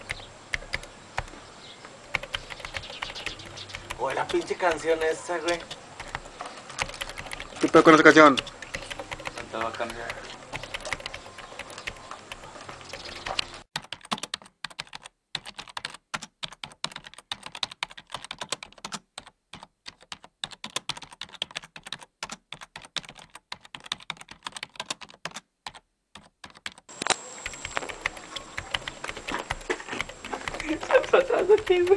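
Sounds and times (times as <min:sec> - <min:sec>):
keyboard typing clicks: 0:00.0 - 0:01.4, 0:02.0 - 0:31.9
outdoor noise: 0:00.0 - 0:14.5, 0:26.9 - 0:31.9.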